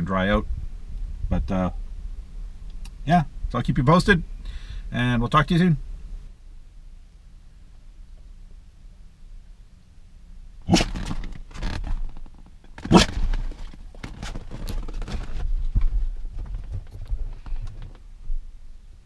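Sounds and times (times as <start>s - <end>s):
dog short sharp sounds: 10.7s - 11.2s, 12.8s - 13.4s
dog shuffling on seat: 10.8s - 18.0s.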